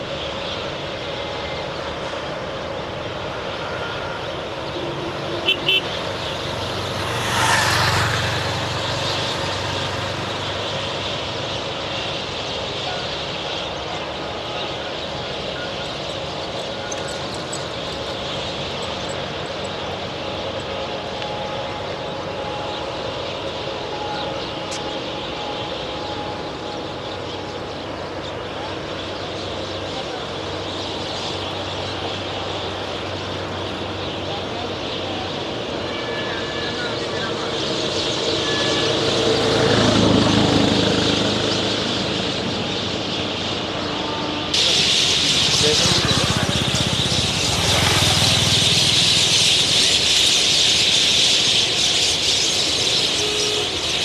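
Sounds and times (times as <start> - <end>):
roadside background noise: 0.0 - 54.0
steady high traffic hiss: 0.0 - 54.0
vehicle engine passing: 5.7 - 11.4, 37.6 - 50.9.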